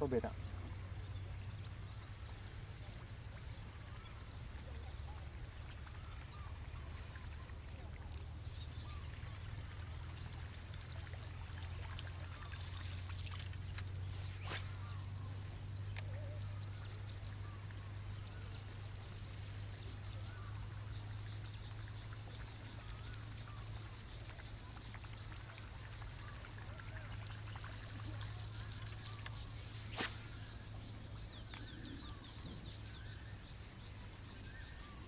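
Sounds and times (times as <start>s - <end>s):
steady low hum: 0.0s - 35.0s
water trickling and lapping: 0.0s - 35.0s
insect trills: 27.2s - 30.3s.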